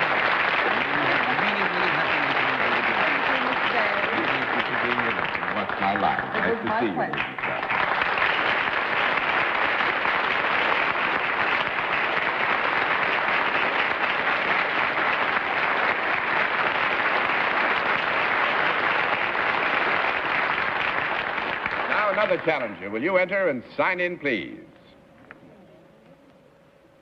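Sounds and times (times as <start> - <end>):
audience applauding: 0.0 - 23.3.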